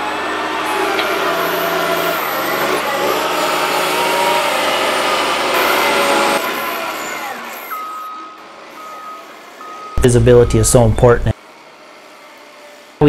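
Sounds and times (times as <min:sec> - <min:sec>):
diesel engine revving: 0:00.0 - 0:13.0
reversing alarm beeping: 0:07.1 - 0:11.4.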